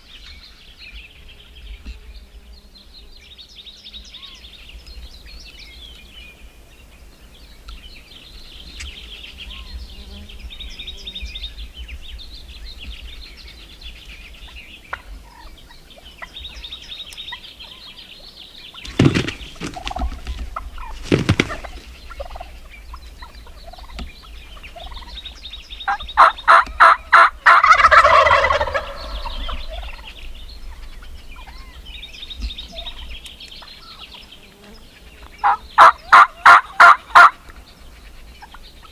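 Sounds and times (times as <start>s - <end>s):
turkey gobbling: 14.9s - 15.5s, 18.9s - 22.5s, 24.7s - 25.2s, 25.9s - 30.1s, 35.4s - 37.4s.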